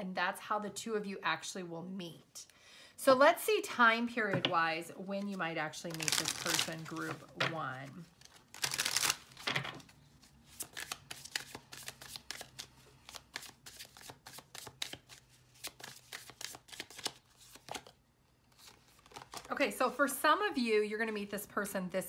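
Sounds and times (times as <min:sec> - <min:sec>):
cards being shuffled: 0:05.9 - 0:19.5.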